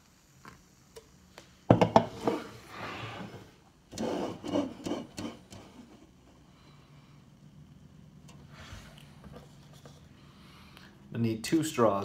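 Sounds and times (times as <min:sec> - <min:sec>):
cans knocking on wooden table: 0:01.7 - 0:02.4.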